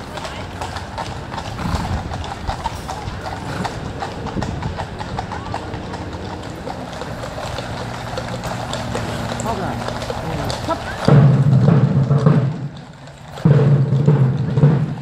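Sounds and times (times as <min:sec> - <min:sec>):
horse hooves clip-clopping on road: 0:00.0 - 0:15.0
murmur of crowd voices: 0:00.0 - 0:15.0.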